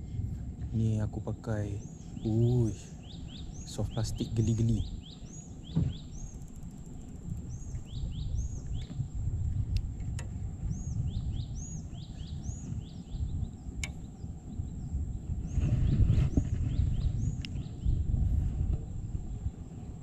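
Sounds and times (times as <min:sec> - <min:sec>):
low rumble: 0:00.0 - 0:20.0
birds chirping: 0:00.9 - 0:09.2, 0:10.6 - 0:18.0.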